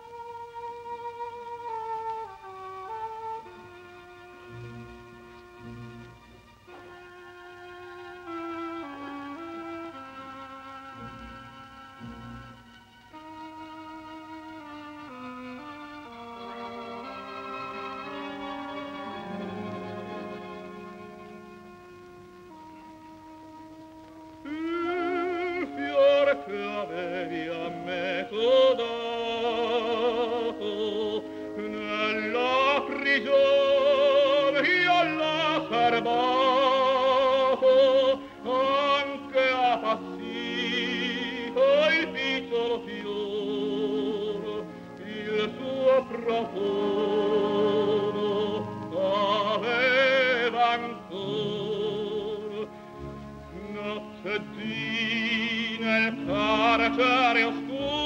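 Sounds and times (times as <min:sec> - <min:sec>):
operatic tenor singing: 0:00.0 - 0:23.2, 0:24.1 - 0:58.0
orchestral accompaniment: 0:00.0 - 0:58.0.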